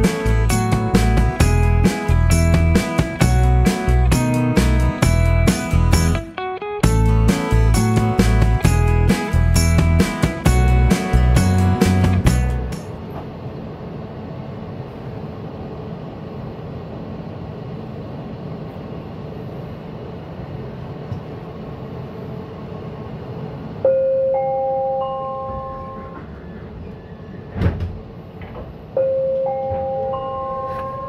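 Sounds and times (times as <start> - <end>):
train car humming: 0.0 - 31.0
three-note rising chime: 29.0 - 31.0.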